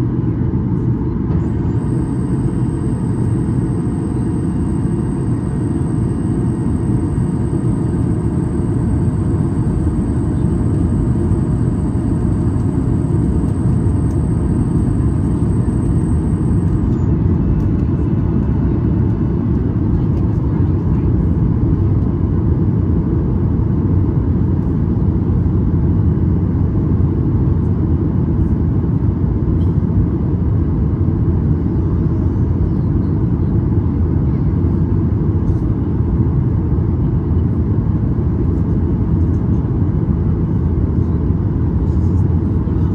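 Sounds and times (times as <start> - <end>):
airplane cabin roar: 0.0 - 42.9
faint high whine: 1.3 - 17.8.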